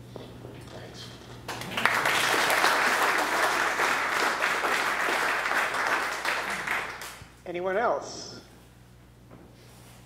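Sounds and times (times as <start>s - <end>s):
audience applauding: 1.5s - 7.2s.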